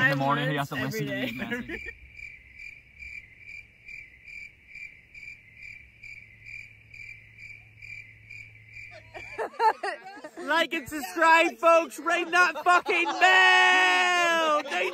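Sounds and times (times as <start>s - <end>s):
cricket chirping: 0.5s - 10.4s.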